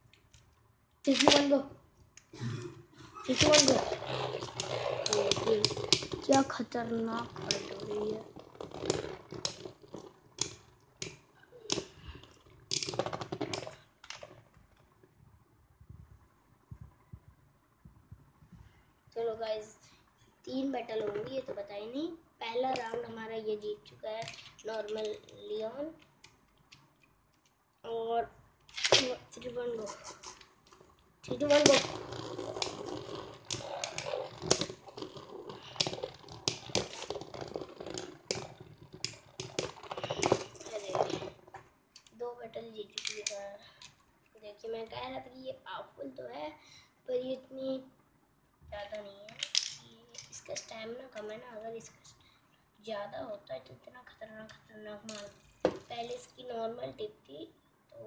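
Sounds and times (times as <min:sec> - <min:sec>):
spinning tops whirring and grinding: 0:03.3 - 0:09.6, 0:31.3 - 0:41.4.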